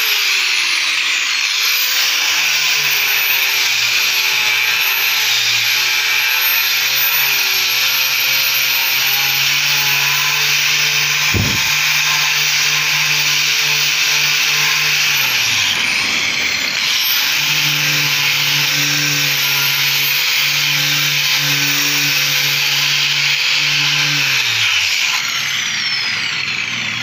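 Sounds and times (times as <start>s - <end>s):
sanding disc hissing on wood: 8.2s - 22.9s
grinder motor hum: 9.3s - 27.0s.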